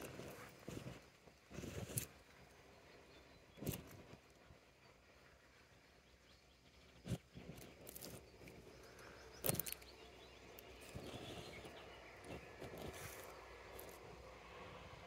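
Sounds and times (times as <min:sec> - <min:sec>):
faint outdoor background: 0:00.0 - 0:15.0.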